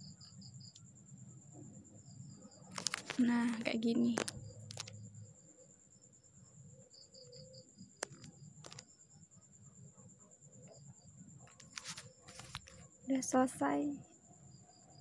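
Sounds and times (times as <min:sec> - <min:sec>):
sharp clicks: 0:08.0 - 0:08.9.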